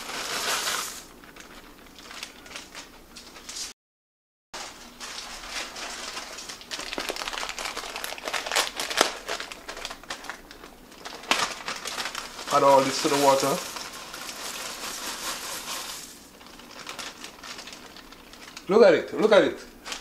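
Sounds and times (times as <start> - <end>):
plastic bag crinkling: 0.0 - 3.7, 4.6 - 20.0
small clicks and crackles: 1.2 - 3.6, 5.0 - 18.7.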